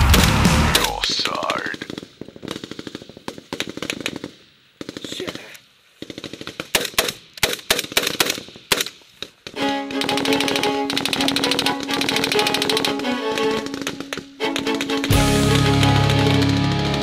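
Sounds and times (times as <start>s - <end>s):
rapid automatic gunfire: 0.0s - 5.4s, 6.0s - 8.9s, 9.9s - 17.0s
music with held notes: 9.6s - 17.0s.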